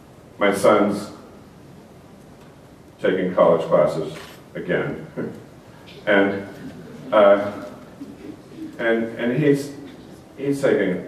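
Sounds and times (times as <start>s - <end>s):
room noise: 0.0s - 11.0s
man speaking: 3.0s - 11.0s.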